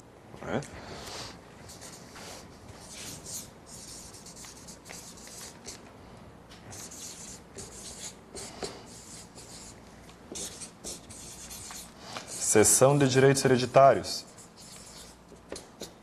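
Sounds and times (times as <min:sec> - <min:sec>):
marker writing on paper: 0:01.6 - 0:05.8, 0:06.7 - 0:12.8, 0:14.2 - 0:16.0.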